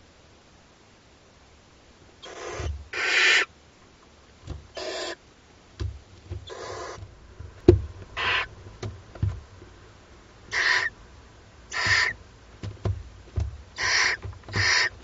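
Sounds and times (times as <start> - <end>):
owl chicks hissing calls: 2.2 - 3.5, 4.7 - 5.2, 6.4 - 7.1, 8.1 - 8.6, 10.4 - 11.0, 11.6 - 12.2, 13.7 - 15.0
sharp knocks: 5.8 - 9.7, 11.7 - 15.0.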